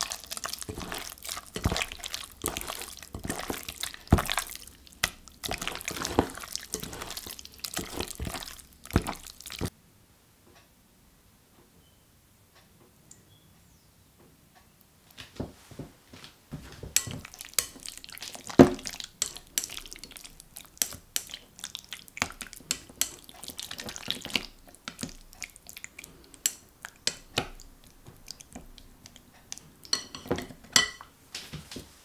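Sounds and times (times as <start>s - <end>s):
wet meat being turned: 0.0s - 9.7s, 16.5s - 31.0s
chopsticks tapping glass bowl: 16.9s - 18.0s, 18.6s - 19.9s, 22.2s - 25.4s, 26.3s - 27.6s, 28.2s - 31.1s.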